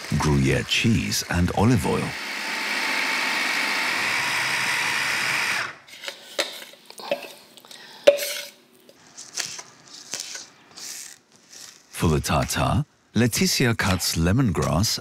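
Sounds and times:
electric mini chopper running: 1.7s - 5.8s.

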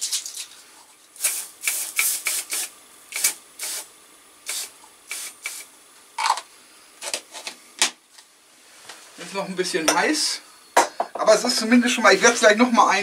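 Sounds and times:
aerosol spray hissing bursts: 1.2s - 5.7s.

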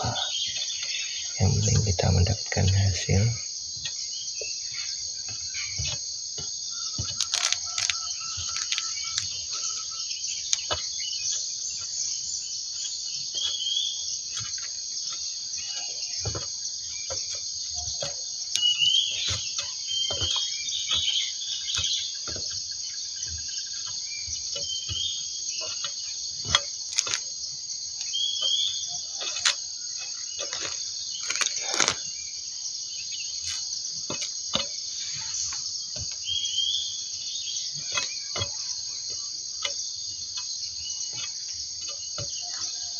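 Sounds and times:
insects chirring: 0.0s - 42.9s
sickle knocking on husks: 5.2s - 12.0s, 12.8s - 27.4s, 33.5s - 36.4s, 37.8s - 42.8s.

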